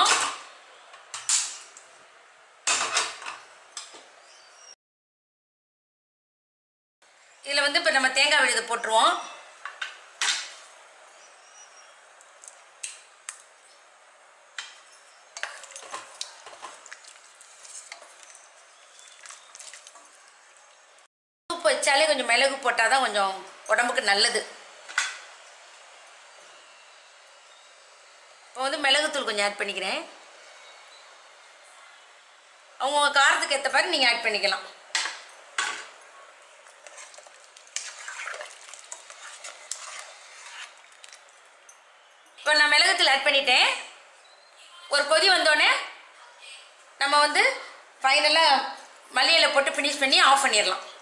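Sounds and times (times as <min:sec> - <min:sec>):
soup bubbling: 0:15.4 - 0:20.8, 0:36.6 - 0:41.5.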